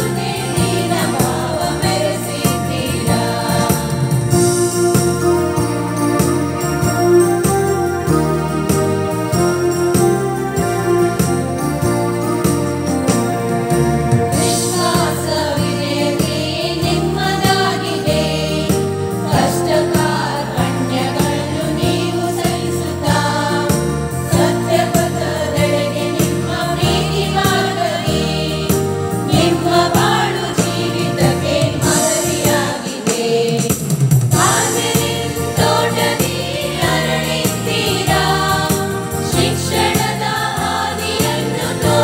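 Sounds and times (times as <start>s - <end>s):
voices singing devotional song: 0.0s - 4.6s, 14.3s - 42.0s
instrumental backing with steady beat: 0.0s - 42.0s.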